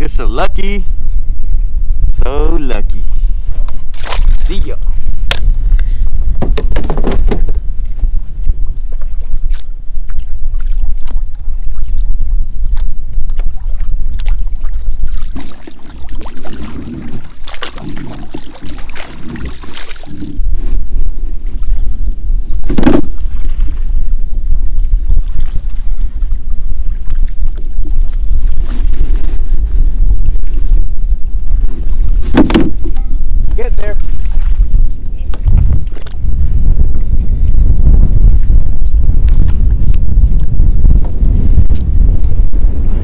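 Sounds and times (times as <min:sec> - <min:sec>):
wind rumble on microphone: 0:00.0 - 0:43.0
paddle strokes splashing water: 0:12.7 - 0:20.8.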